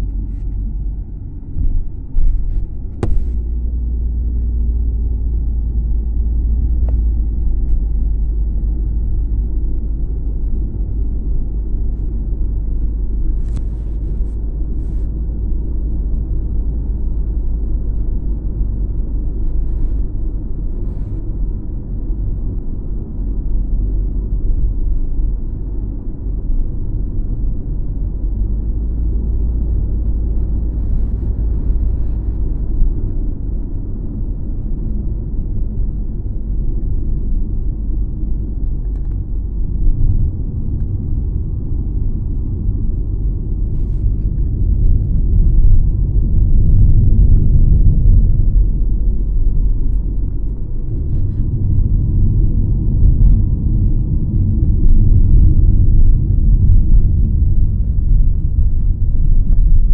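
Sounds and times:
car cabin road and engine rumble: 0.0 - 59.9.

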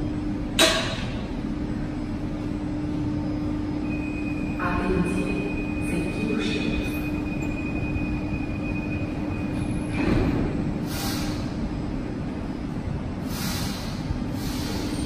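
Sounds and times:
train humming with high tone: 0.0 - 15.0
train doors closing thud: 9.9 - 10.6.

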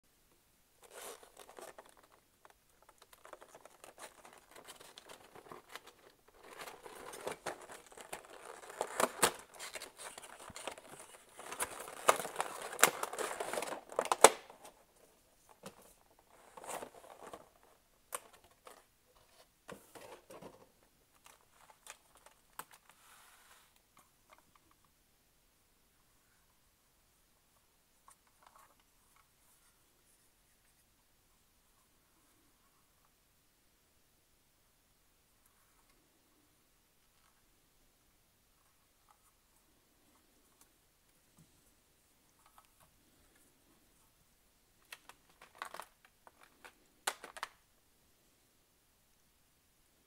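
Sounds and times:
cardboard box rustling: 0.8 - 14.8.

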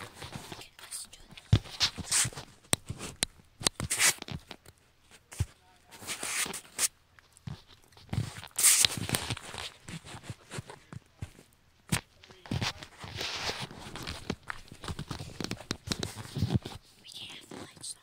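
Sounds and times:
clothing rustling: 12.3 - 17.0.

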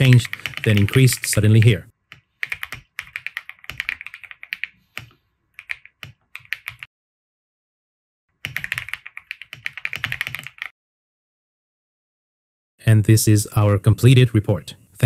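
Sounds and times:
typing on computer keyboard: 0.0 - 6.9, 8.4 - 10.7.

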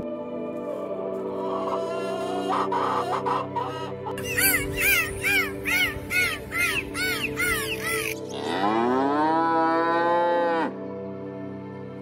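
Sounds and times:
background music: 0.0 - 12.0
cow mooing: 8.3 - 10.8.

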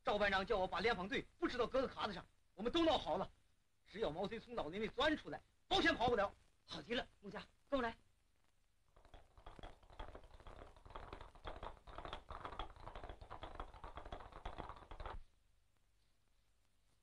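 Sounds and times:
horses galloping on stony ground: 9.4 - 15.2.

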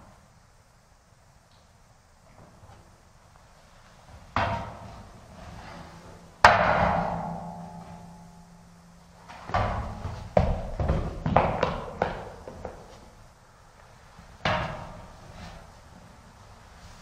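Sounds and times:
metal ladder ringing: 6.5 - 9.9
shoes knocking on metal ladder: 9.3 - 13.1.

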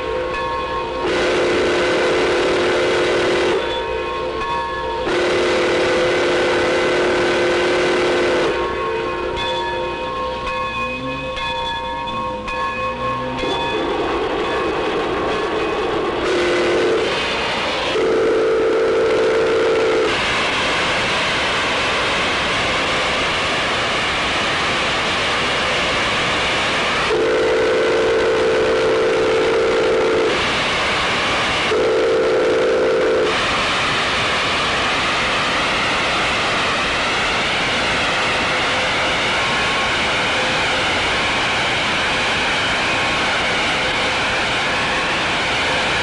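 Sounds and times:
steam hissing: 0.0 - 46.0
steam whistle blasts: 1.0 - 4.1, 5.0 - 9.0, 16.2 - 20.4, 27.0 - 31.0, 31.6 - 34.2.

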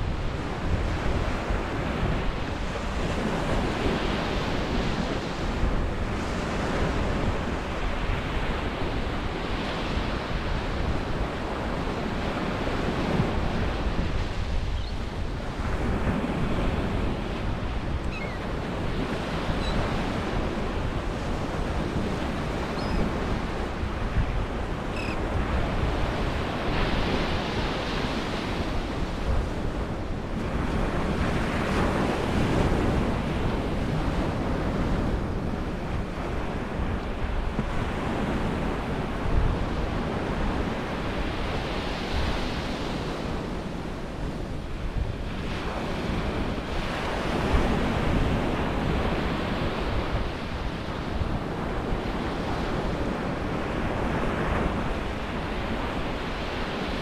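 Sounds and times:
ocean surf on beach: 0.0 - 57.0
wind on microphone: 0.0 - 57.0
faint short bird calls: 18.1 - 18.4.

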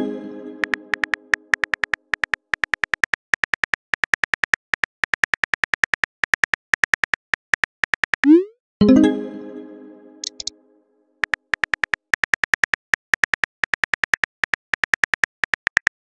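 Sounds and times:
phone keyboard typing clicks: 0.6 - 8.3, 10.2 - 10.5, 11.2 - 16.0.

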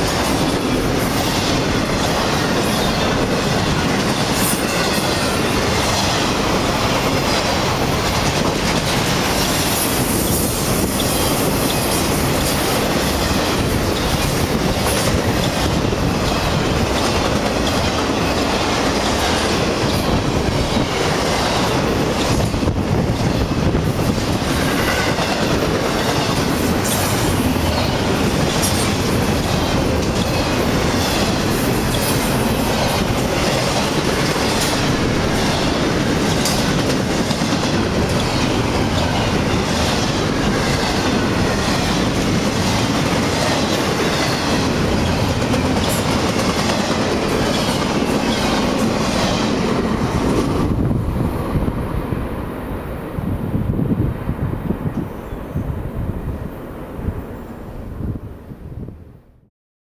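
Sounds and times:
freight train rumble: 0.0 - 59.2
wheels clacking over rail joints: 24.2 - 50.7.

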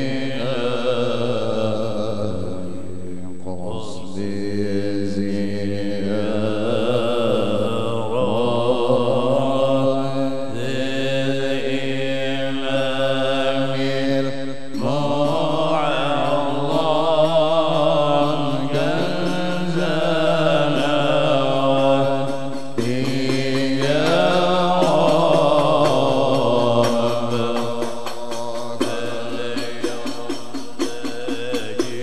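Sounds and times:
man chanting into a microphone: 0.0 - 32.0.

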